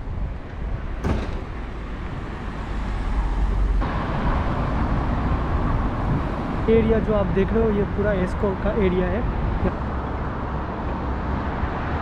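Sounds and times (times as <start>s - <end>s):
cars and van driving past: 0.6s - 6.8s, 9.2s - 12.0s.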